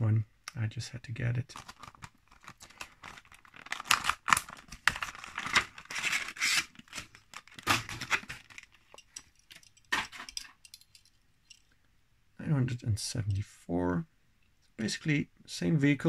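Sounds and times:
plastic packaging crackling and tearing: 1.5 - 9.0.

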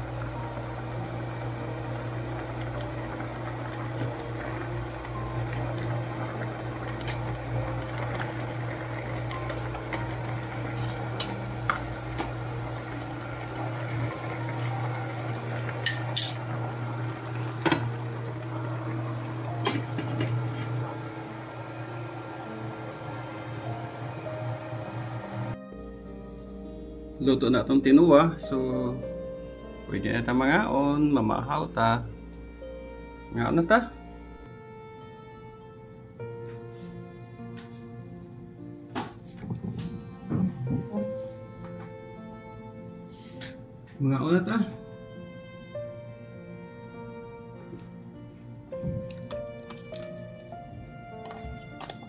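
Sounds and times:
soup boiling in a pot: 0.0 - 25.6
metal clinking on a pot: 15.8 - 16.4.

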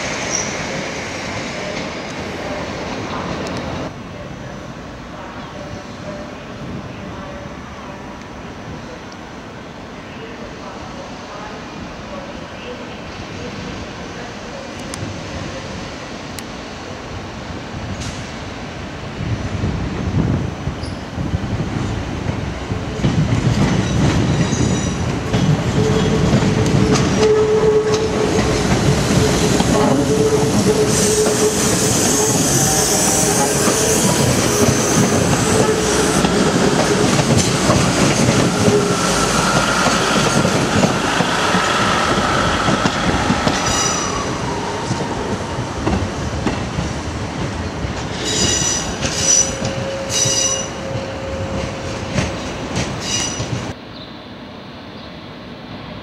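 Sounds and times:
train wheels squealing: 0.2 - 0.8, 20.8 - 21.1, 23.8 - 25.0, 30.1 - 36.2, 41.2 - 44.7, 48.2 - 53.6
train wheels clattering over rails: 21.8 - 53.8.

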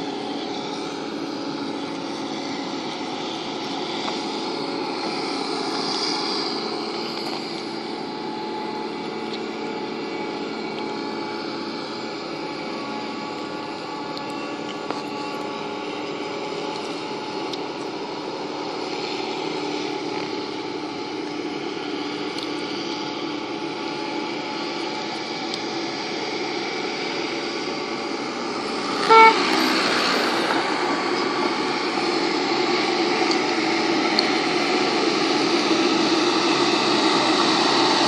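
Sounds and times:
tractor engine running: 0.0 - 38.0
tractor horn toot: 29.0 - 29.8.

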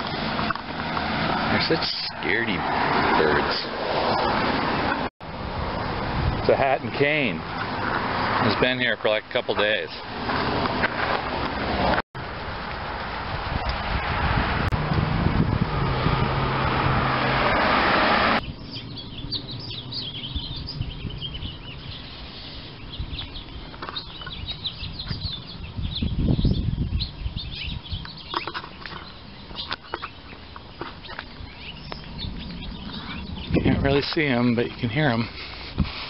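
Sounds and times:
low gust of wind: 0.0 - 8.5, 11.6 - 23.7, 31.3 - 36.0
songbirds chirping: 0.0 - 12.0, 18.4 - 35.8
wind noise on microphone: 3.8 - 8.4, 13.0 - 36.0.

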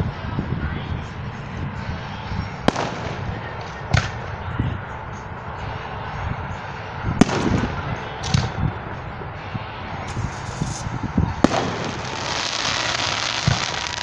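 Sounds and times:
low rumble and hiss: 0.0 - 14.0
fireworks bangs: 2.7 - 4.2, 7.2 - 8.6, 10.1 - 14.0.

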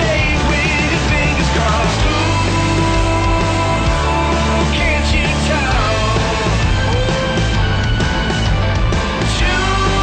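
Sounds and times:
rock music: 0.0 - 10.0.

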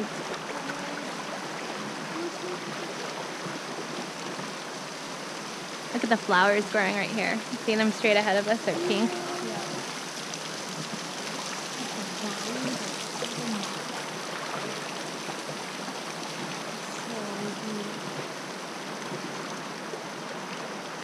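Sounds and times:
faint voices: 0.0 - 4.0, 5.9 - 10.0, 11.7 - 13.9, 16.6 - 18.1
river water rushing: 0.0 - 21.0.

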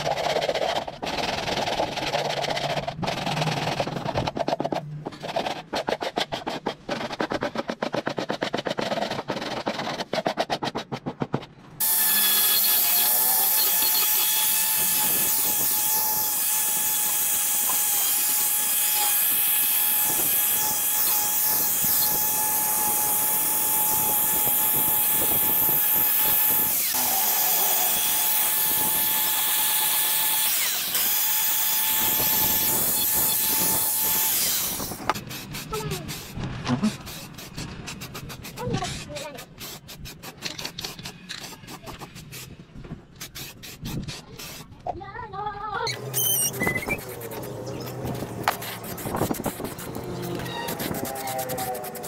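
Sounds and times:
sandpaper rubbing on plastic: 0.0 - 11.4, 12.6 - 16.2, 32.5 - 44.8, 45.9 - 52.0
angle grinder whining: 11.8 - 35.2.

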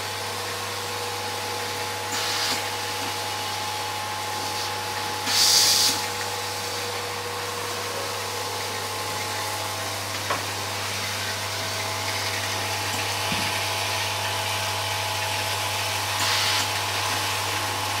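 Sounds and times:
fume extractor and fans hiss: 0.0 - 18.0
vibratory feeder hum: 0.0 - 18.0
short loud hisses: 5.2 - 6.0.

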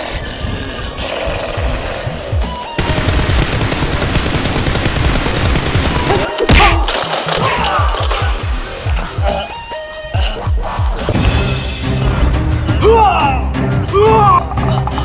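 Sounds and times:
rapid gunfire: 2.8 - 8.4
background music with steady beat: 6.2 - 15.0.

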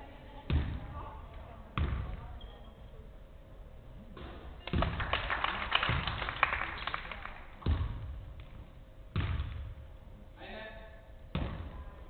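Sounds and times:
basketball thudding on gym floor: 0.5 - 0.9, 1.8 - 2.2, 7.6 - 9.7, 11.3 - 11.8
scattered clapping: 4.6 - 7.4.

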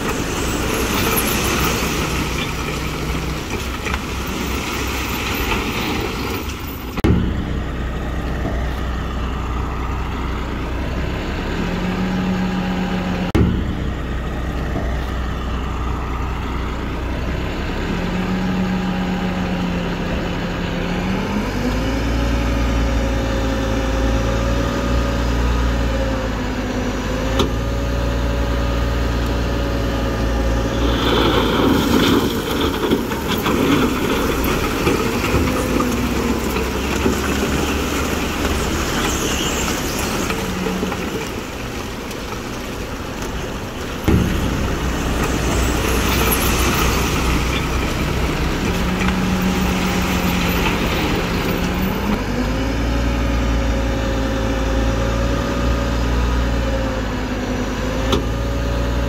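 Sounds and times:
heavy machinery diesel engine: 0.0 - 59.0
rushing noise: 30.4 - 52.2.

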